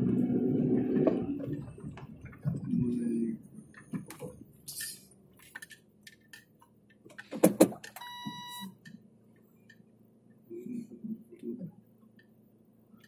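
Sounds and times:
electronic beep: 0:08.0 - 0:08.8.

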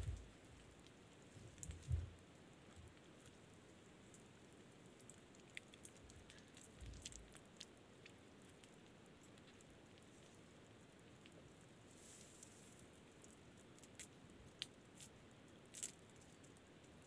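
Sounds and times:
soft low thumps: 0:00.0 - 0:00.3, 0:01.7 - 0:02.1.

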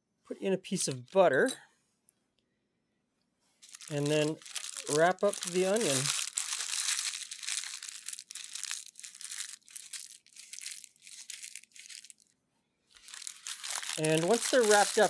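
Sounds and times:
parchment paper crinkling: 0:03.6 - 0:12.3, 0:12.9 - 0:15.0.

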